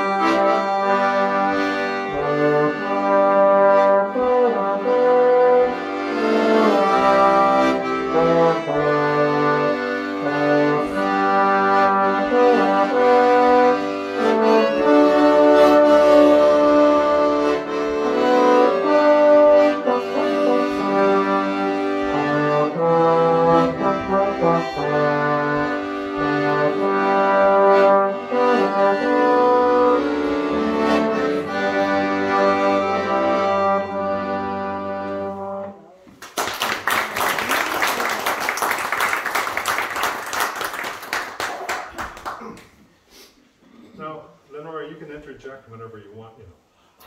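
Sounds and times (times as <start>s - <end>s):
trombone and accordion playing hymn: 0.0s - 35.9s
audience applause: 36.2s - 42.7s.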